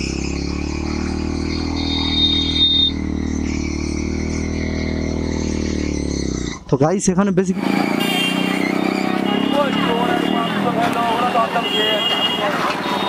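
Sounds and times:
motorcycle engine running: 0.0s - 6.6s, 7.5s - 11.7s
high-pitched tone: 0.6s - 4.6s.

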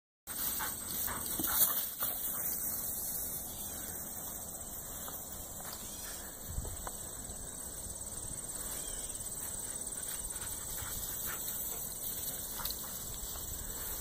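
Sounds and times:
high buzz of insects: 0.3s - 14.0s.

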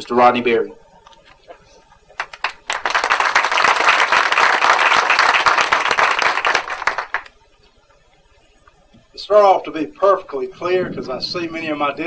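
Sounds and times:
audience applauding: 2.1s - 7.3s.

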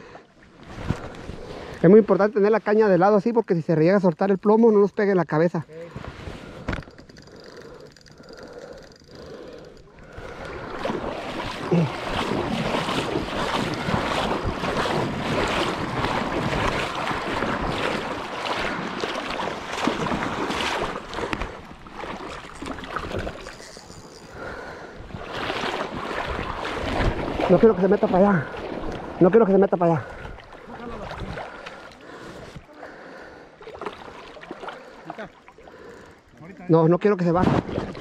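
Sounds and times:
water splashing and sloshing: 0.0s - 38.0s
wind noise on microphone: 12.0s - 18.2s, 22.4s - 27.5s.

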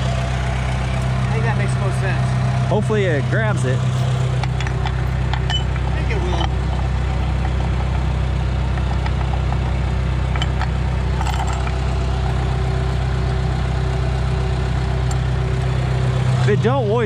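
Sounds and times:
diesel engine idling: 0.0s - 17.0s
steel chain clinking: 4.4s - 7.8s, 10.4s - 11.9s.

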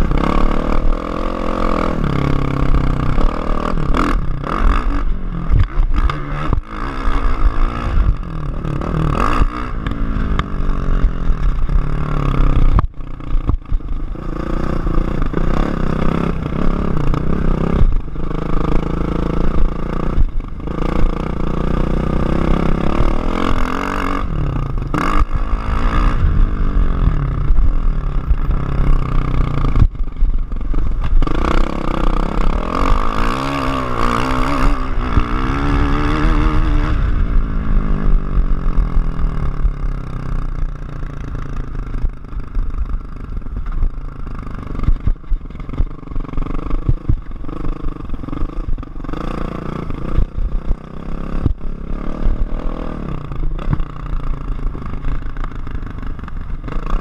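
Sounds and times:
motocross engine revving: 0.0s - 29.9s, 30.5s - 42.2s.

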